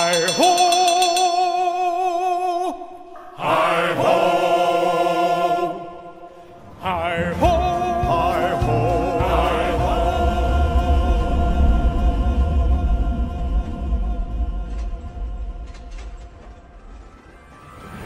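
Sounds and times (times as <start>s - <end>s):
voices singing with vibrato: 0.0s - 16.1s
low rumble: 7.1s - 18.0s.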